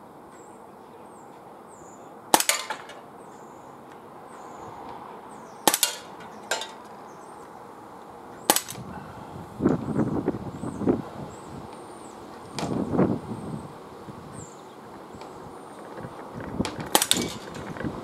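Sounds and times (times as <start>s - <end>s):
air pistol pops: 2.4s - 2.9s, 5.7s - 6.1s, 8.5s - 8.8s, 16.9s - 17.4s
wind noise: 8.5s - 18.0s.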